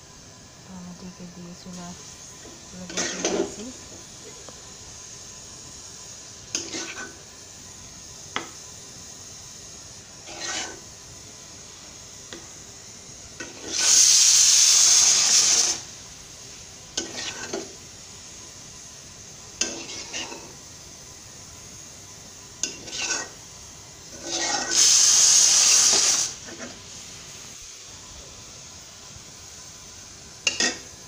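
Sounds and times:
metal spatula scraping pan: 10.2s - 10.8s, 19.6s - 20.5s, 22.7s - 23.4s, 24.1s - 24.8s.

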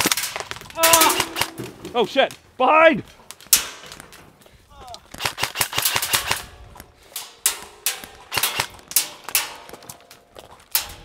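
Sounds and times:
airsoft rifles firing: 0.0s - 2.0s, 5.1s - 6.6s, 7.3s - 9.7s.

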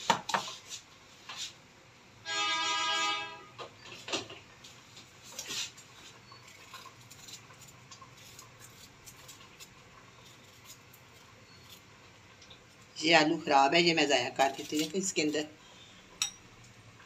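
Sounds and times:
horn sounding: 2.2s - 3.6s.

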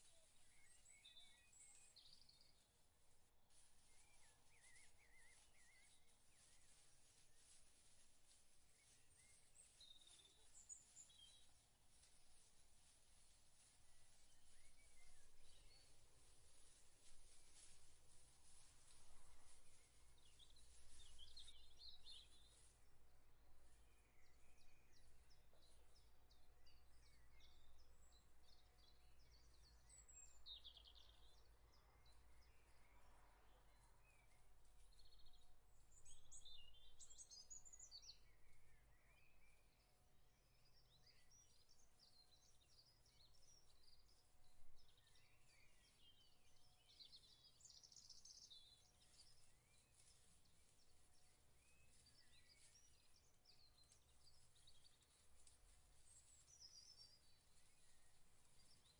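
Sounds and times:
bird chirps: 0.0s - 2.7s, 3.8s - 6.8s.

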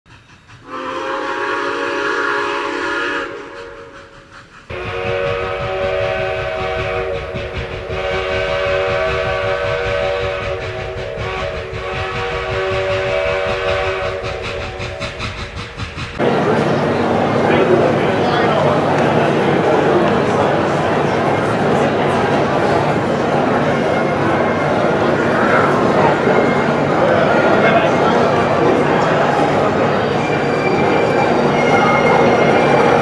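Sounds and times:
train air horn chord: 0.6s - 15.0s.

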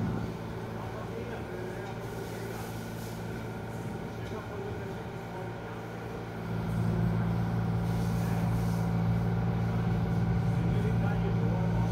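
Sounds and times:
excavator diesel engine: 0.0s - 11.9s.

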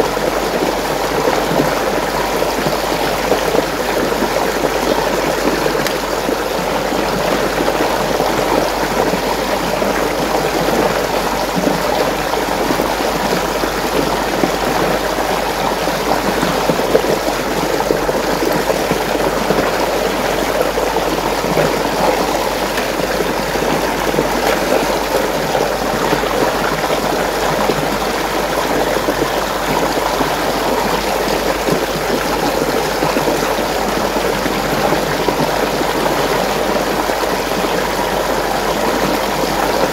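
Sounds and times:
water rushing in a whirlpool: 0.0s - 39.9s.

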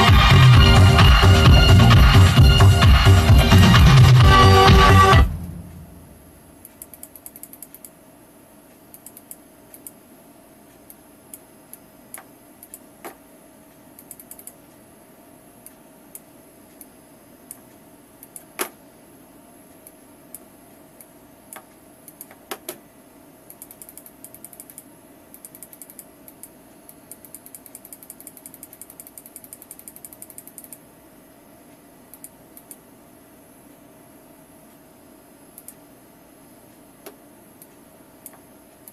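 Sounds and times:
computer mouse clicks: 6.6s - 8.0s, 8.8s - 10.0s, 10.7s - 14.8s, 15.6s - 18.8s, 19.8s - 22.8s, 23.4s - 30.9s, 32.1s - 32.9s, 35.5s - 35.9s, 37.0s - 38.9s
scroll wheel ticking: 6.6s - 8.0s, 8.7s - 10.0s, 10.7s - 13.0s, 13.7s - 14.9s, 23.4s - 30.9s, 37.5s - 38.9s.

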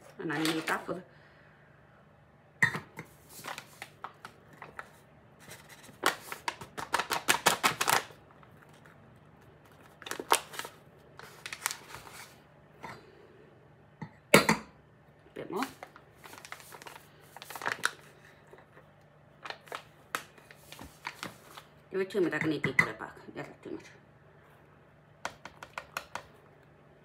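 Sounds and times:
flour bag rustling: 3.1s - 12.4s, 15.6s - 18.7s, 19.4s - 21.8s.

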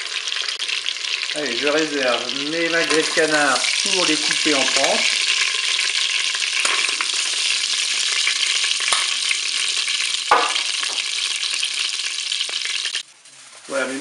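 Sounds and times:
fat sizzling in a pot: 0.0s - 14.0s.

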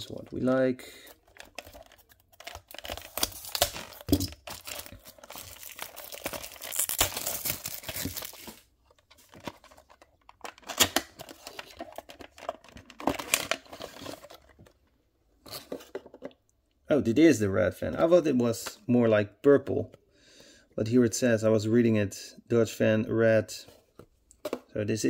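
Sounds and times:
plastic shrink-wrap crinkling: 1.2s - 14.4s
cardboard box opening: 1.3s - 10.0s.

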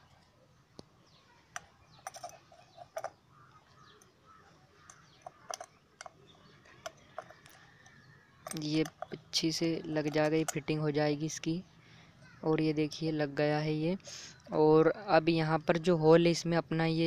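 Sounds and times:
faint plastic and metal clicks and taps: 1.5s - 2.3s, 2.9s - 9.3s.

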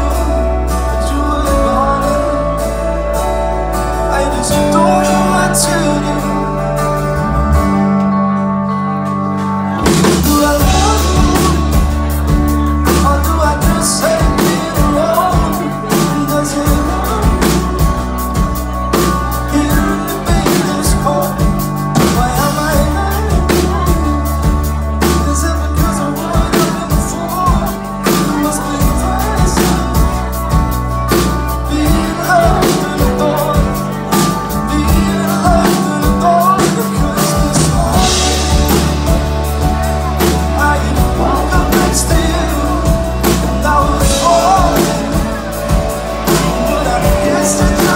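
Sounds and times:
man singing: 0.0s - 7.7s, 9.7s - 47.9s
pop-rock band playing: 0.0s - 47.9s
drum beat: 31.9s - 47.9s.

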